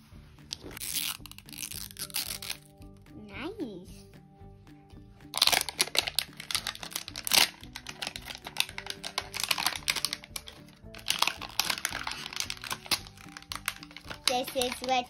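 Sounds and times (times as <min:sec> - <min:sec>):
background music: 0:00.0 - 0:15.0
wrapper crinkling and tearing: 0:00.5 - 0:02.7, 0:05.3 - 0:15.0.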